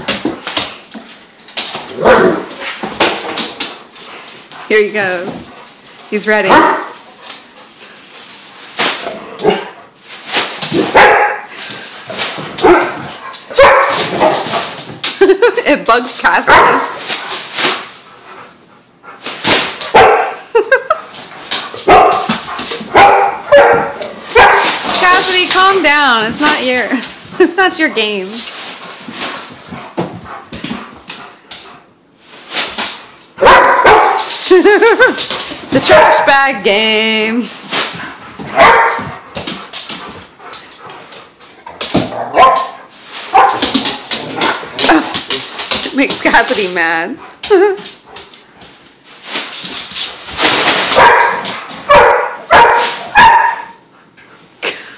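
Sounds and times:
dog barking: 2.0 - 2.5, 6.5 - 7.0, 10.9 - 11.5, 12.6 - 14.4, 16.5 - 17.0, 19.9 - 20.4, 21.8 - 22.3, 22.9 - 24.7, 33.4 - 34.3, 35.8 - 36.3, 38.6 - 39.0, 42.2 - 43.7, 51.0 - 53.8
scuffling and rustling: 21.1 - 33.1, 36.8 - 53.3.

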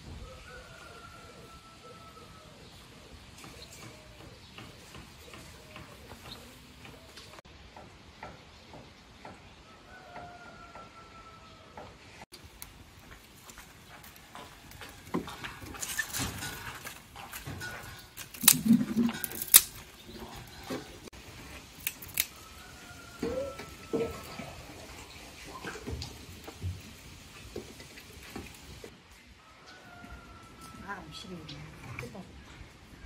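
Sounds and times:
wood fire crackling: 12.3 - 28.9
dry twigs snapping: 18.2 - 20.0, 21.6 - 22.4.

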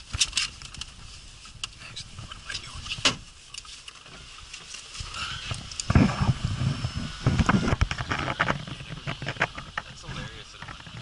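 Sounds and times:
wind buffeting microphone: 5.0 - 11.0.

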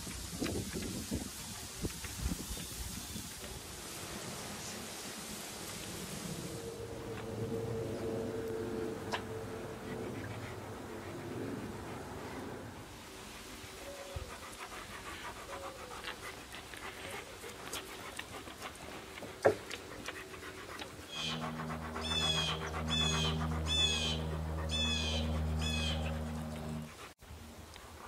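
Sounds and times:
dog panting: 8.8 - 27.2
steady low hum: 19.8 - 27.2
bird chirping: 21.1 - 26.8.

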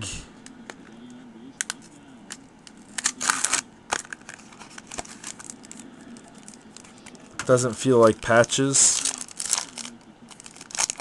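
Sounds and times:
foil wrapper crinkling and tearing: 2.6 - 11.0.

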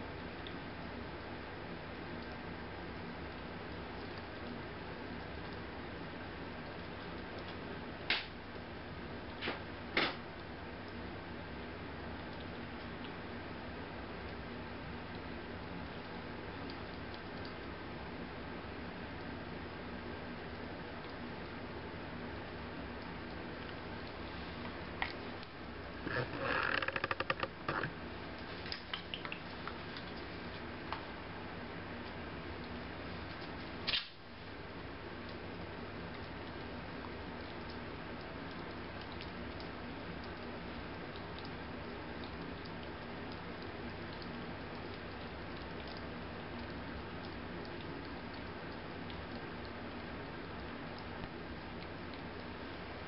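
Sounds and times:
steady hiss and low hum: 0.0 - 53.0
small clicks: 26.1 - 27.9
kittens licking and smacking: 35.1 - 52.6.

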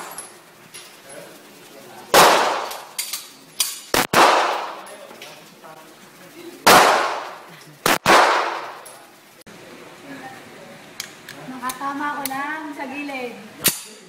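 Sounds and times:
gunshots echoing indoors: 2.1 - 3.0, 3.9 - 4.9, 6.7 - 8.8.

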